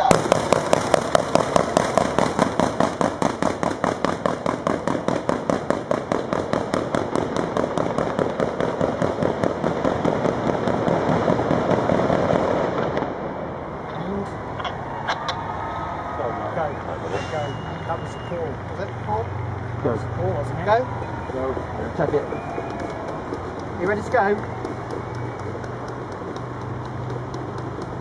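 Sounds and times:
fireworks reports: 16.2s - 28.0s.

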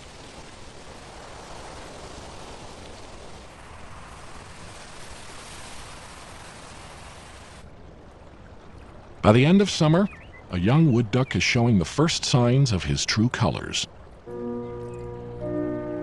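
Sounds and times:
soft outdoor rushing noise: 0.0s - 16.0s.

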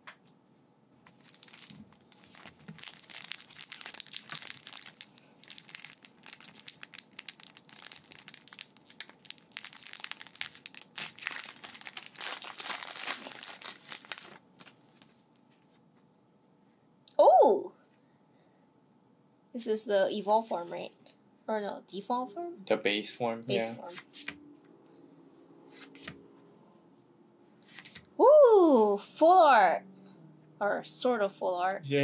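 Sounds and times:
foil wrapper crinkling and tearing: 1.2s - 15.1s.

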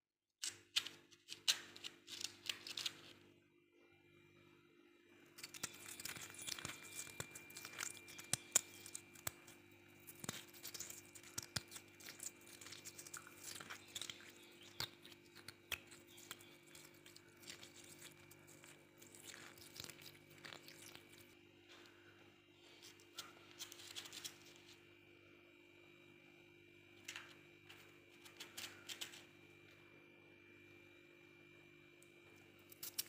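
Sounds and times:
frost being bitten and chewed: 0.4s - 3.1s, 5.4s - 22.0s, 32.7s - 33.0s.

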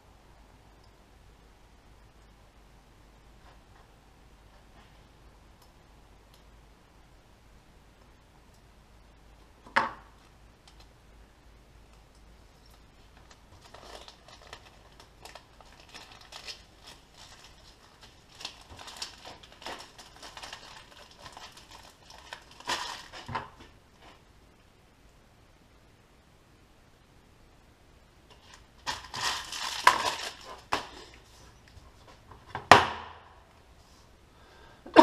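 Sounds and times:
vinyl sheet crinkling and rustling: 10.1s - 11.0s, 11.9s - 24.3s, 28.3s - 32.7s.

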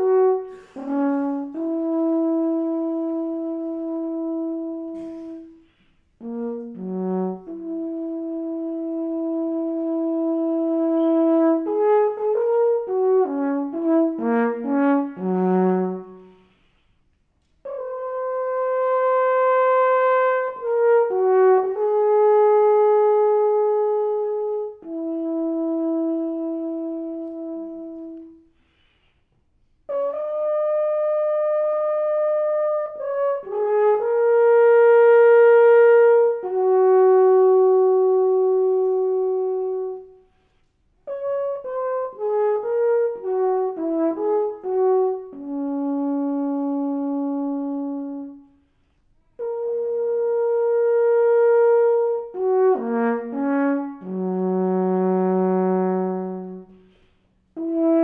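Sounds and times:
alphorn playing: 0.0s - 5.1s, 49.4s - 56.9s.

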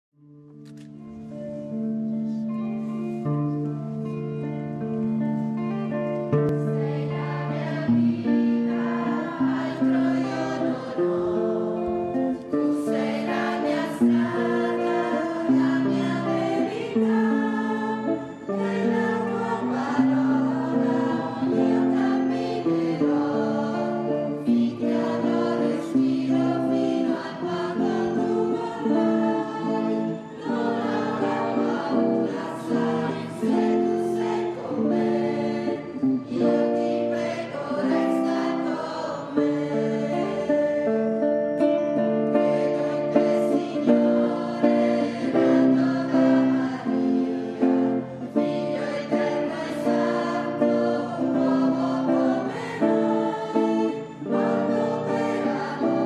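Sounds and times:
guitar accompaniment: 0.2s - 56.0s
choir singing a hymn: 1.2s - 56.0s.

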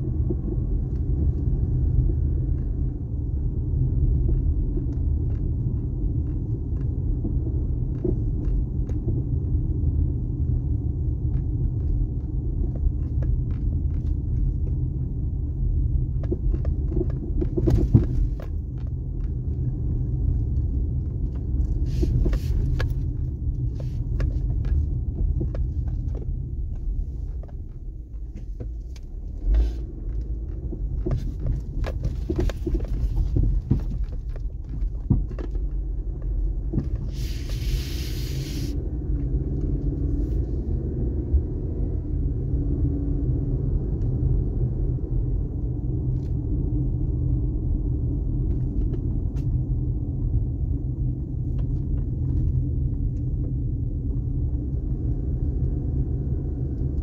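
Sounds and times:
vehicle engine and tyres rumbling: 0.0s - 57.0s
knocks and rattles: 24.2s - 37.1s
brief hiss: 37.2s - 38.8s.

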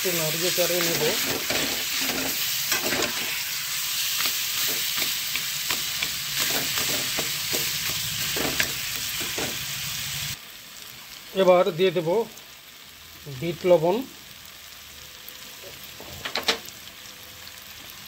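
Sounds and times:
olives sizzling in hot oil: 0.0s - 18.0s
metal spatula scraping a pan: 0.4s - 9.6s.

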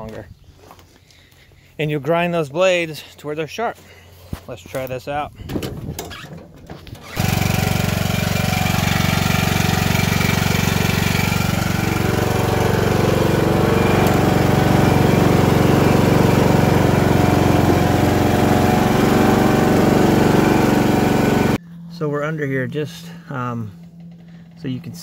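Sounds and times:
lawn mower engine running: 6.8s - 21.6s.

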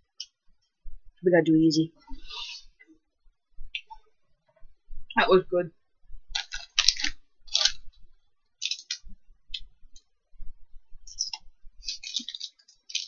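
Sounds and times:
snack wrappers crinkling: 6.3s - 8.0s, 8.6s - 9.7s, 11.1s - 13.0s.

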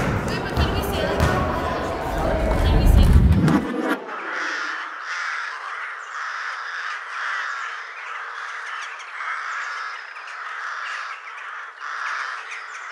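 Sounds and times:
crows cawing: 4.1s - 12.9s.

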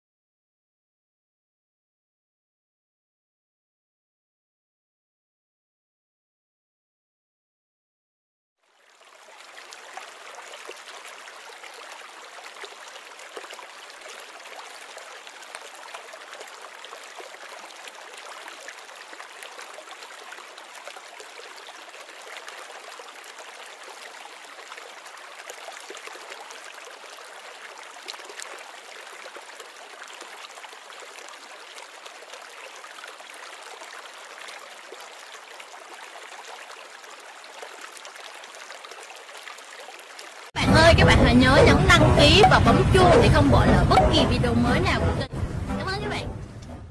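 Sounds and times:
aquarium water trickling and bubbling: 8.6s - 45.0s.

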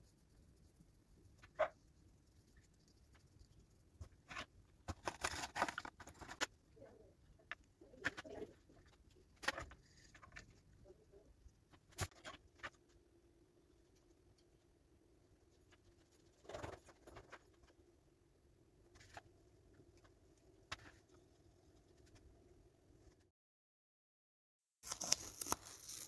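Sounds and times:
paper rustling: 4.3s - 6.5s, 24.8s - 26.0s.

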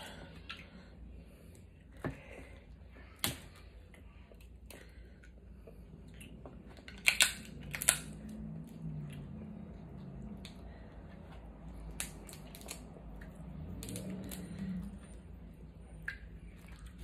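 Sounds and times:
crab shells cracking: 6.8s - 8.2s, 11.9s - 13.0s, 13.7s - 14.7s.

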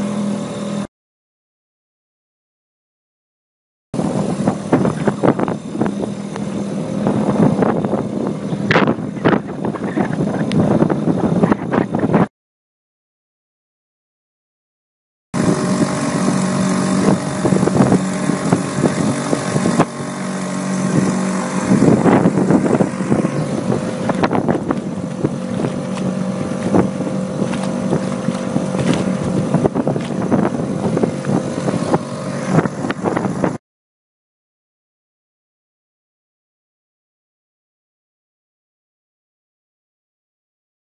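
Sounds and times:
motorboat engine running: 0.0s - 0.9s, 4.0s - 12.3s, 15.4s - 33.6s
wind on microphone: 4.0s - 12.3s, 15.4s - 33.6s.

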